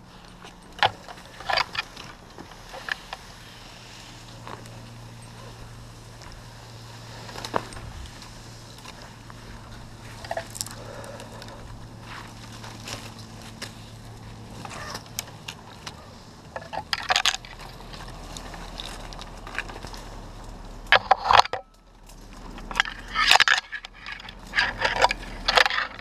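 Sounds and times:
rope and gear clicks and scrapes: 0.0s - 26.0s
clatter of clicks: 14.6s - 26.0s.

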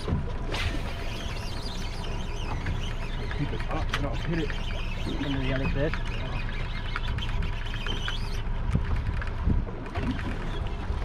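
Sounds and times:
water lapping against boat hull: 0.0s - 11.0s
wind buffeting microphone: 7.0s - 11.0s.

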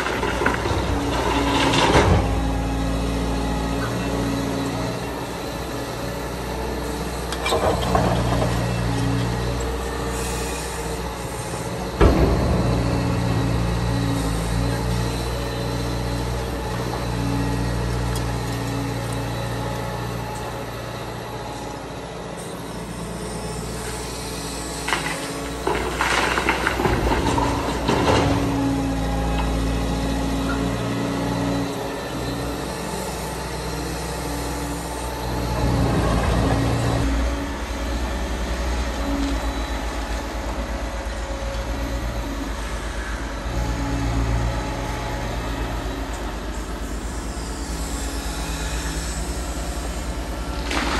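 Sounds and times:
clattering and scraping: 0.0s - 2.5s, 24.9s - 28.6s
excavator diesel engine running: 0.0s - 50.9s.

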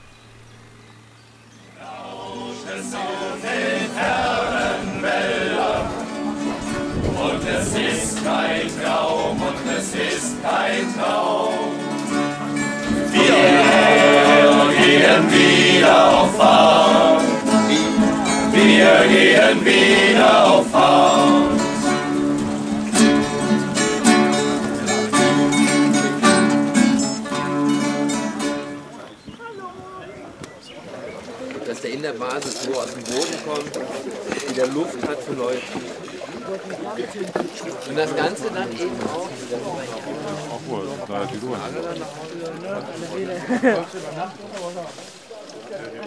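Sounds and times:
group of voices singing: 1.7s - 25.5s
strummed acoustic guitars: 1.8s - 29.1s.

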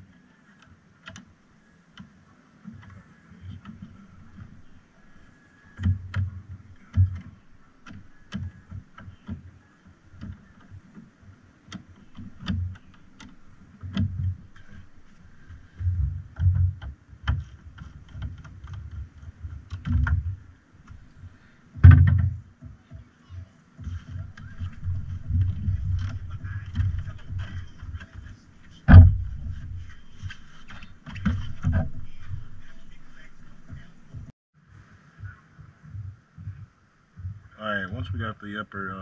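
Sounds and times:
loud thump: 21.8s - 22.4s, 28.9s - 30.3s.

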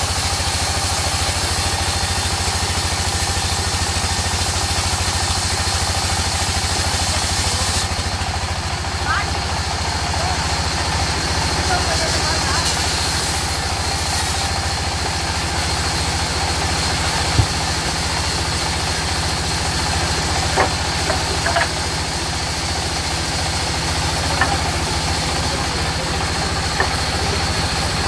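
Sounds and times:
engine droning: 7.9s - 28.0s
band saw cutting log: 10.4s - 28.0s
short knocks and clicks: 17.3s - 17.8s.

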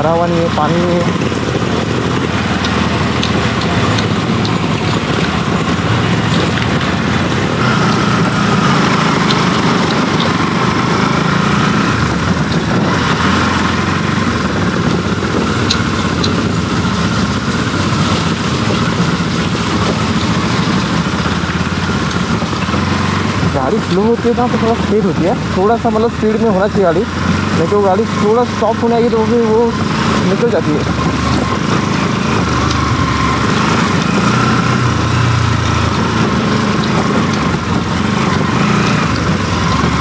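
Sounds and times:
motorcycle engine running: 0.0s - 40.0s
tyres crunching over stones: 29.7s - 40.0s.

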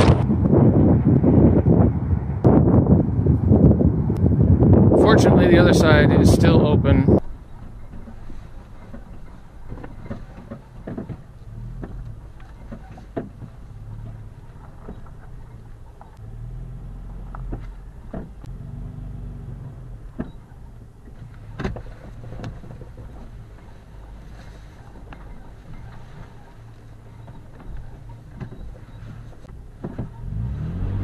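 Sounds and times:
car engine and road hum: 0.0s - 31.0s
knocks and rattles: 7.2s - 16.2s.

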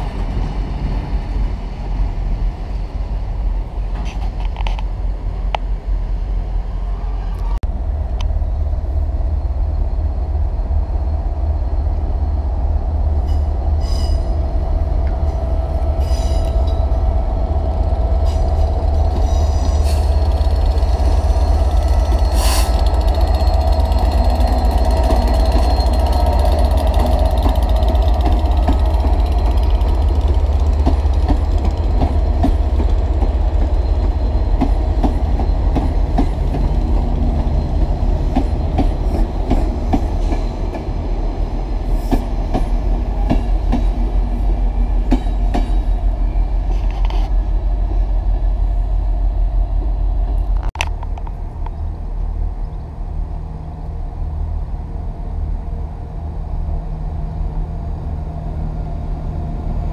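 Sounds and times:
diesel locomotive rumbling: 0.0s - 59.9s
wheels clicking over rail joints: 17.7s - 40.9s
high-pitched wheel squeals: 18.2s - 29.5s.

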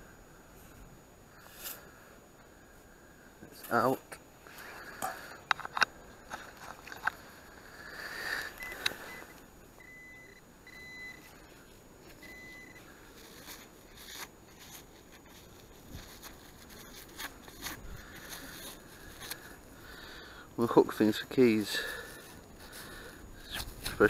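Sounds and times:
metal detector beeps: 8.6s - 11.3s, 12.2s - 12.9s.

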